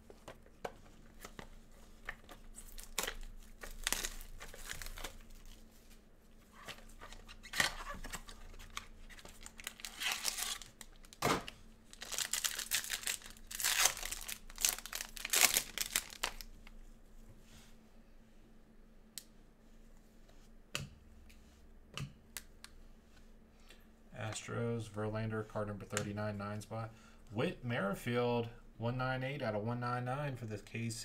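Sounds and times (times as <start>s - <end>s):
packaging tearing and crinkling: 2.1s - 5.6s, 6.7s - 16.5s.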